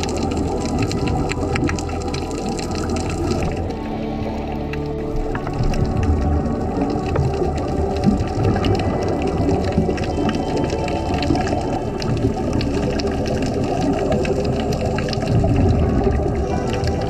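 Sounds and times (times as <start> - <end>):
muffled underwater bubbling: 0.0 - 17.0.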